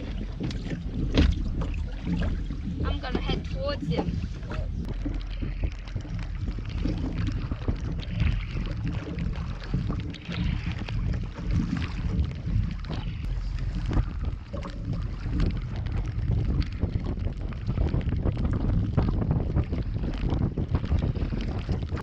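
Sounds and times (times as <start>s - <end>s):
water splashing on a kayak: 0.0s - 22.0s
wind buffeting microphone: 0.0s - 22.0s.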